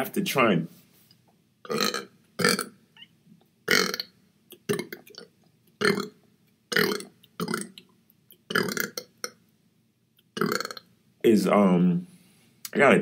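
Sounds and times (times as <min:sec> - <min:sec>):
man burping: 0:01.7 - 0:02.7, 0:03.7 - 0:05.2, 0:05.8 - 0:06.1, 0:06.7 - 0:07.7, 0:08.5 - 0:09.4, 0:10.4 - 0:10.8.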